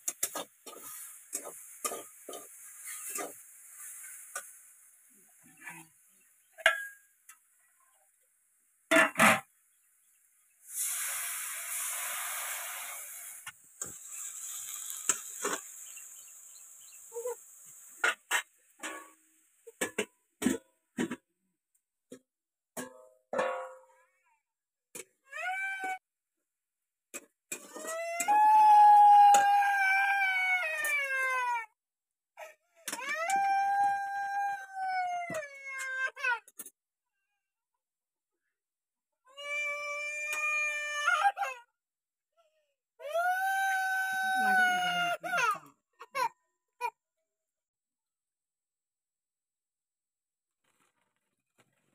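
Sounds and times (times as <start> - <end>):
water sizzling in hot pan: 0.0 - 5.6, 10.6 - 19.7.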